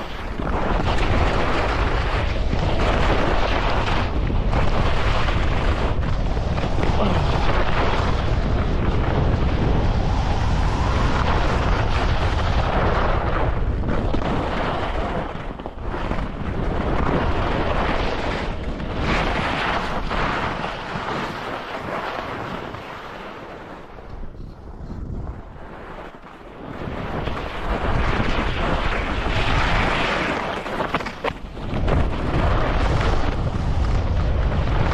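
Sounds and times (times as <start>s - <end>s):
skis scraping over snow: 0.0s - 34.9s
wind buffeting microphone: 0.0s - 34.9s.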